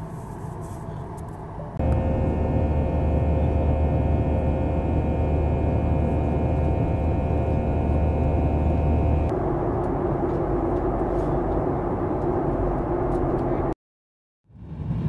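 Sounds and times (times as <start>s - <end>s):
jet engine cabin hum: 1.4s - 13.7s
mid-pitched cabin tone: 1.8s - 9.3s.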